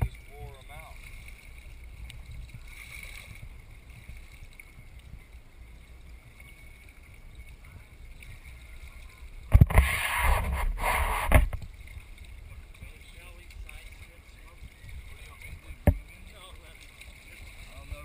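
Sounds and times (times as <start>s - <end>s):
water washing along boat hull: 0.0s - 18.0s
loud splashing and knocks: 9.5s - 11.7s, 15.5s - 16.1s.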